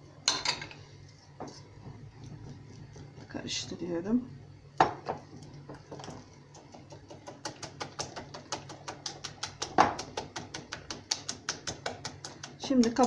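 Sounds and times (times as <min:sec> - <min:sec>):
whisk clicking against glass bowl: 0:06.5 - 0:13.0.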